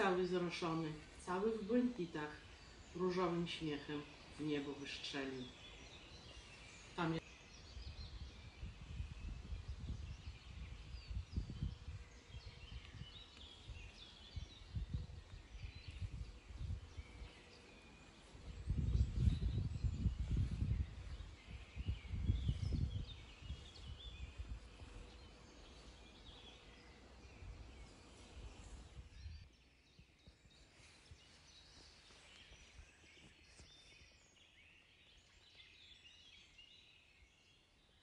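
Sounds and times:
birds singing: 0.0 - 38.0
wind buffeting microphone: 7.3 - 31.8.

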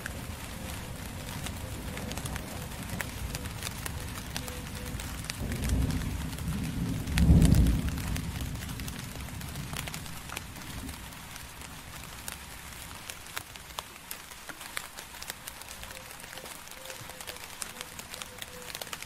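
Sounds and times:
distant thunder rumble: 0.0 - 12.4
raindrops ticking on hard surface: 0.0 - 19.0
steady rain: 0.0 - 19.0.

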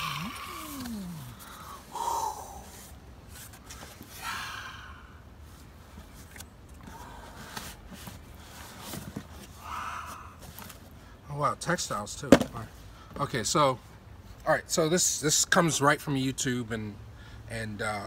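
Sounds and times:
soft scrapes and rustles: 2.7 - 4.2, 7.2 - 9.6.

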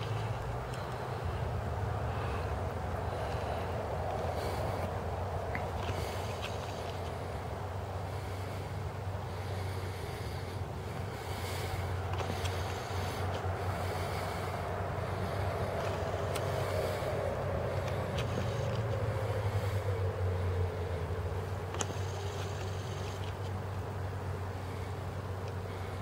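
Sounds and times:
vehicle engine humming: 0.0 - 26.0
vehicle passing by: 0.0 - 26.0
faint clicks: 21.5 - 23.6.

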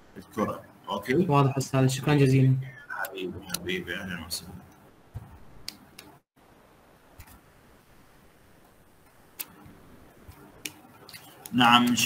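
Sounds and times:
faint microphone hiss: 0.0 - 12.0
soft clicks: 5.6 - 6.2, 9.0 - 9.6.

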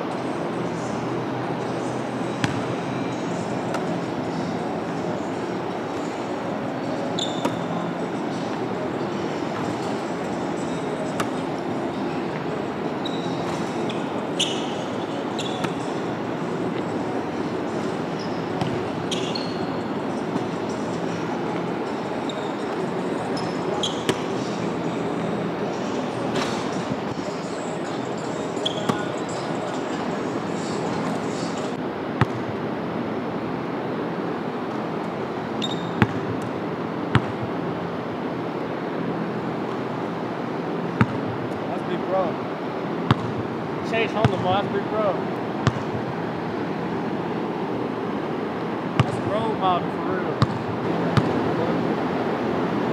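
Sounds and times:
steady background hum: 0.0 - 52.9
sneaker squeak: 1.6 - 12.3, 12.9 - 32.4, 35.5 - 36.3
sneaker squeaks on hardwood: 7.0 - 8.4, 13.0 - 16.0, 17.8 - 20.5, 22.2 - 24.5, 28.4 - 29.5, 35.6 - 36.2
basketball bouncing on hardwood floor: 43.1 - 43.4, 45.6 - 46.0
basketball thuds: 43.1 - 43.4.

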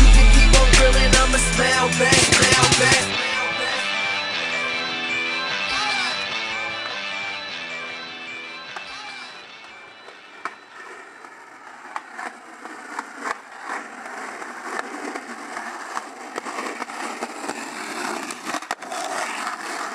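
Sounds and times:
skateboard wheels rolling on concrete: 0.5 - 19.9
skateboard sharp clicks: 8.8 - 19.9.

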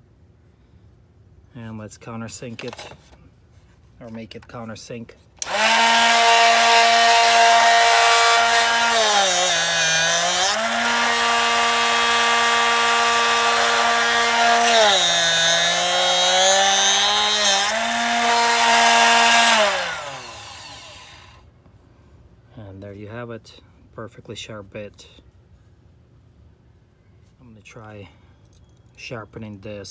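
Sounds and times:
electric drill cutting wood: 5.4 - 21.4.

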